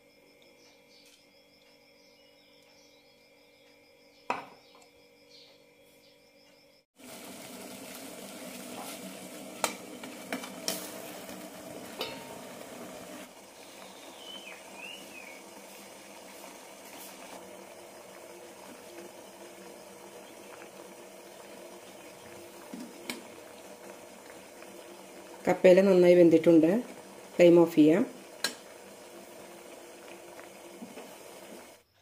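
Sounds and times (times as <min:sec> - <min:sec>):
steady steam hiss: 0:07.0 - 0:31.8
water boiling in a pot: 0:07.0 - 0:31.9.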